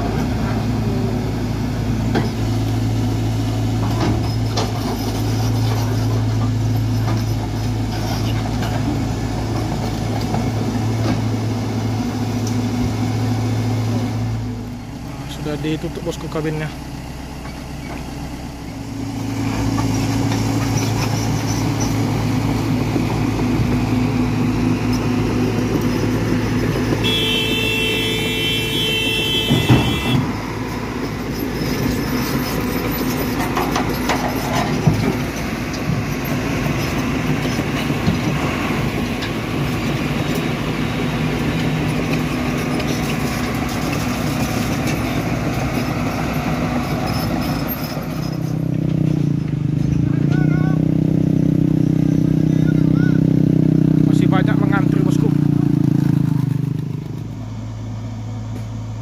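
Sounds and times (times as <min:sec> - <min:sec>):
diesel truck engine drone: 0:00.0 - 0:59.0
brief high tone: 0:27.0 - 0:30.3.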